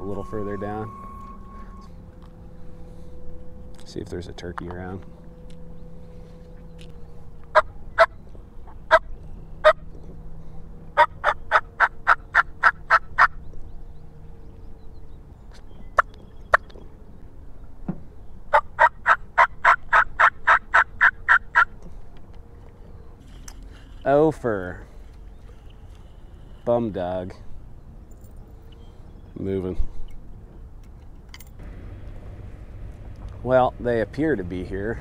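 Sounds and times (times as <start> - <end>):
turkey call yelps: 11.0 - 13.4, 18.5 - 21.8.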